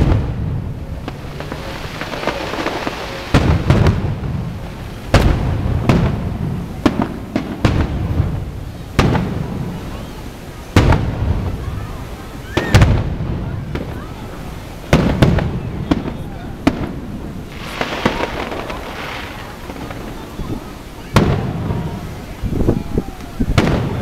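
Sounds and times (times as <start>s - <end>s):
fireworks booming: 0.0s - 24.0s.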